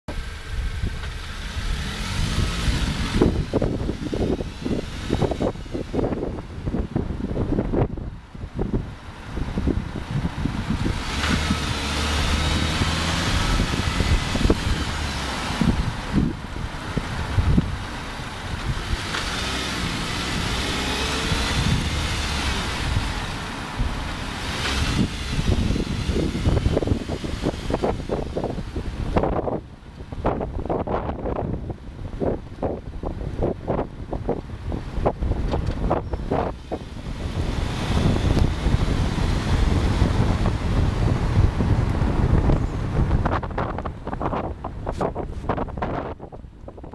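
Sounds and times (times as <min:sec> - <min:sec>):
car engine accelerating: 0:00.1 - 0:31.5, 0:32.2 - 0:46.9
tyre and road noise: 0:00.1 - 0:46.9
wind buffeting microphone: 0:00.2 - 0:46.9.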